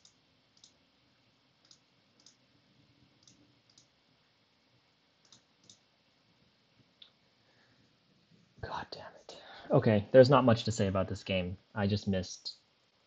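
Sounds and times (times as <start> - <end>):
computer mouse clicks: 0.0 - 0.8, 1.6 - 2.4, 3.2 - 3.9, 5.2 - 5.8.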